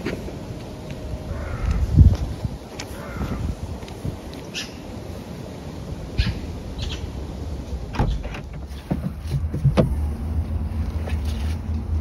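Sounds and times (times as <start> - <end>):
low steady rumble: 5.6 - 12.0.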